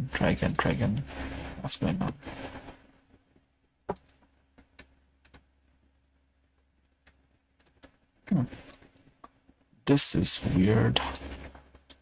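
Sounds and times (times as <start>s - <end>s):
keyboard keys clicking: 3.9s - 5.4s.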